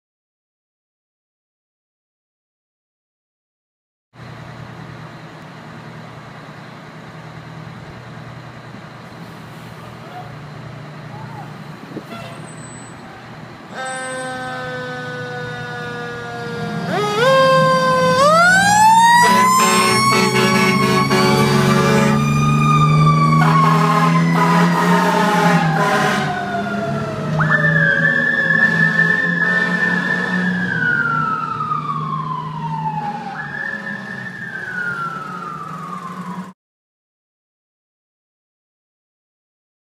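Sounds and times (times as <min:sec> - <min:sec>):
truck engine rumble: 0:04.2 - 0:36.5
fire engine siren: 0:11.1 - 0:36.6.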